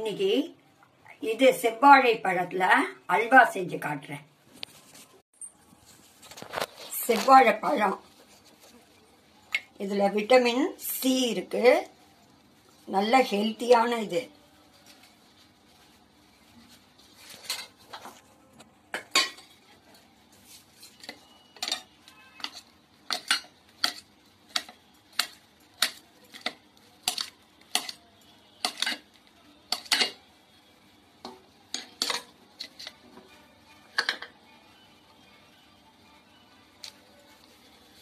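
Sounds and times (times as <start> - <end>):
knife clinking against metal bowl: 29.7 - 30.2.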